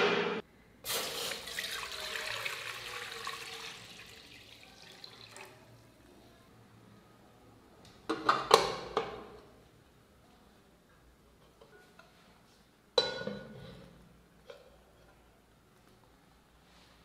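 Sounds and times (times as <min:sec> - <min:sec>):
water pouring into metal pot: 0:00.9 - 0:05.7.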